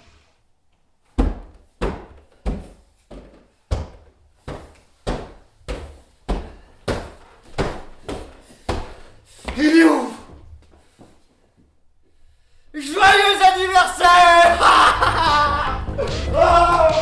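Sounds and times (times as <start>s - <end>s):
footsteps on staircase: 1.1s - 12.1s.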